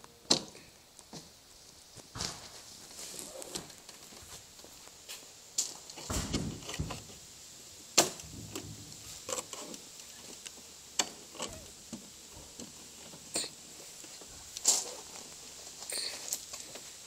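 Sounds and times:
plastic hood clicks and knocks: 0:06.1 - 0:07.2, 0:08.1 - 0:09.4.

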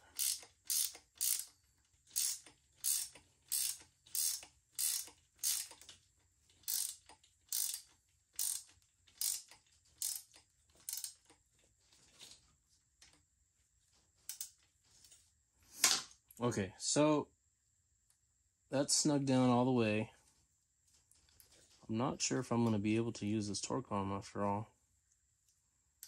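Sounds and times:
ratchet wrench clicking: 0:00.0 - 0:05.9, 0:06.6 - 0:11.3, 0:14.3 - 0:14.6.

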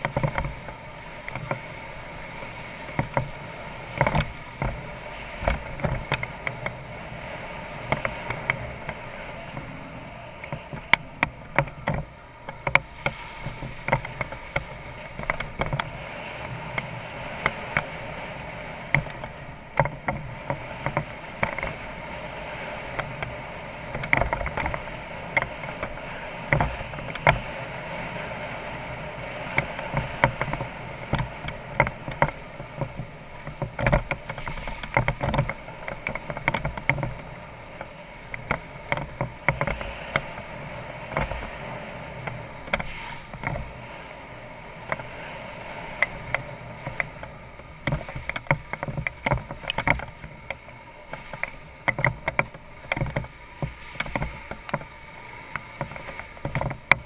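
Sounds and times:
motorcycle riding on dirt track: 0:00.0 - 0:02.0.

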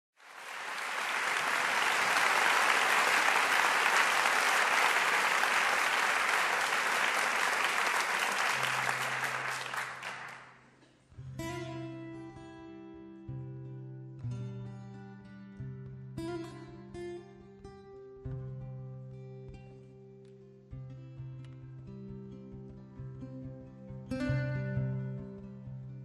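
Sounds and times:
audience applauding: 0:00.2 - 0:10.7
acoustic guitar chords: 0:11.2 - 0:26.0.

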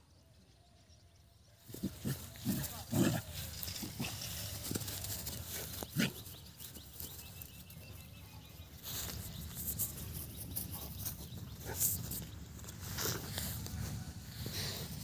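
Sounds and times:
rustling: 0:01.7 - 0:07.5
dog grunting: 0:01.8 - 0:04.2.

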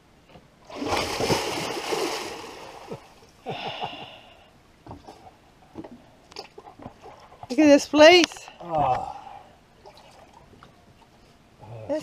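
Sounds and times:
water churning: 0:00.6 - 0:03.2
person jumping into water splash: 0:00.7 - 0:03.0
person swimming splash: 0:00.7 - 0:03.0.

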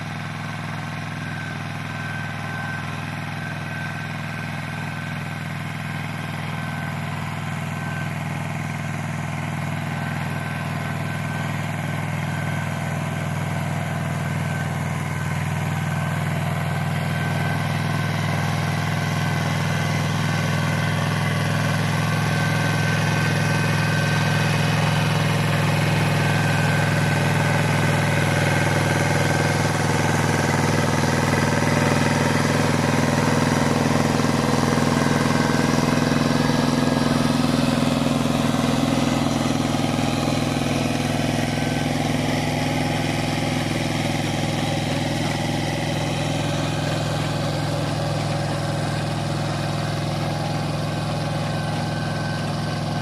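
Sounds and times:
rotary tiller churning soil: 0:00.0 - 0:53.0
tractor engine running: 0:00.0 - 0:53.0.

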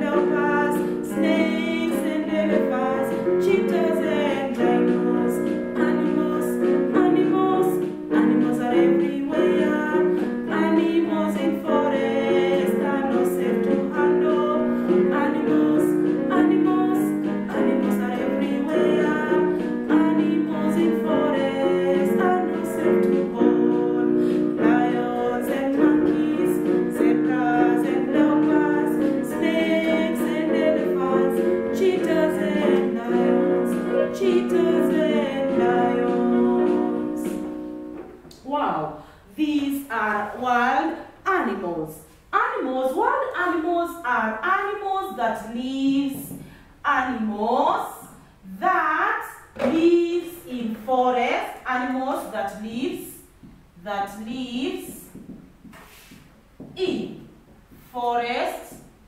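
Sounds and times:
woman singing: 0:00.0 - 0:37.7
instrumental backing with beat: 0:00.0 - 0:38.4.

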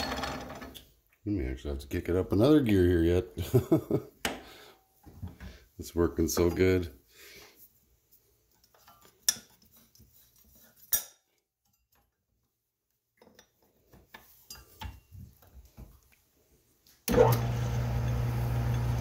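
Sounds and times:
small metal taps and knocks: 0:13.2 - 0:15.9.

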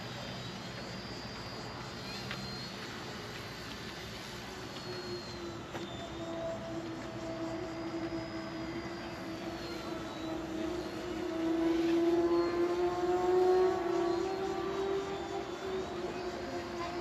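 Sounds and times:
toy helicopter buzzing whine: 0:00.0 - 0:17.0.

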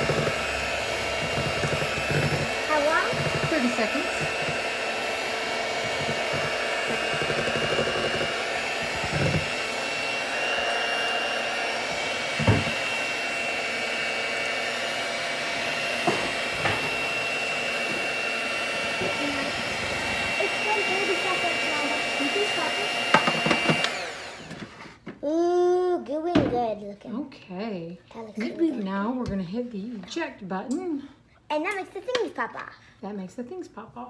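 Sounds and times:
electric hand mixer whirring: 0:00.0 - 0:25.0.

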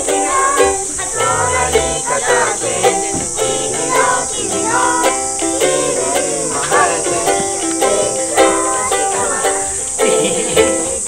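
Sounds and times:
ukulele strumming: 0:00.0 - 0:11.0
low bass notes: 0:01.2 - 0:02.2.

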